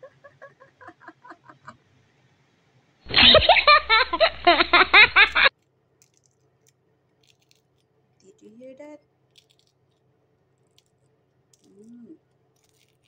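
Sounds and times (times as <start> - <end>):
high-pitched laughter: 0.0 - 1.8, 3.1 - 5.5.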